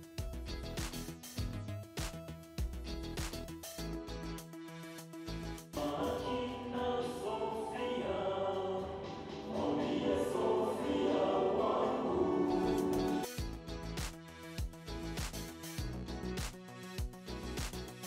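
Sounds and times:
men singing together: 5.8 - 13.2.

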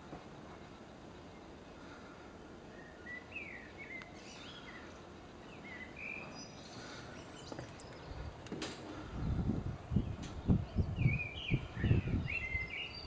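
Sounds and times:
birds chirping and whistling: 2.7 - 13.0
wind rumble on microphone: 7.7 - 13.0
wind rushing: 8.2 - 12.7.

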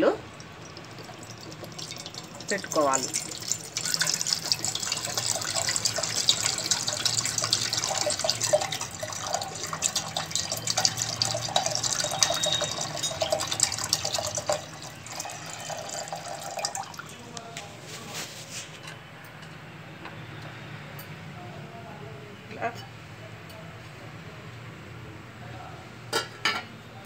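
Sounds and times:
water pouring into metal pot: 0.0 - 17.3.

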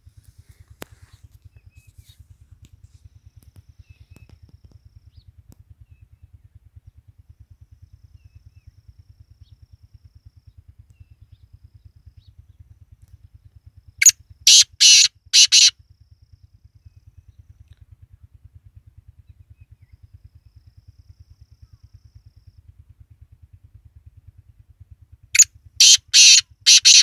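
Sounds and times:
faint low pulsing hum: 0.0 - 27.0
bird harsh rasping call: 14.5 - 15.7, 25.4 - 27.0.

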